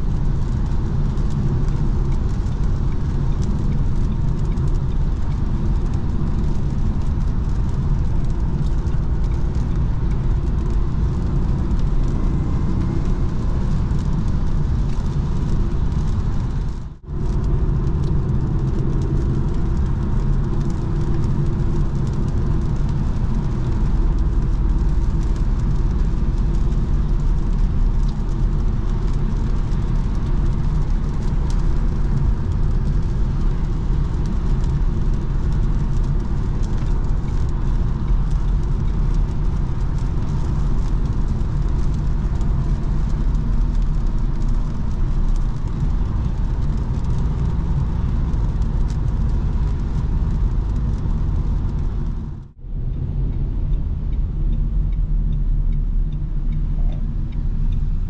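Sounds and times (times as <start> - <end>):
engine and road rumble: 0.0 - 58.0.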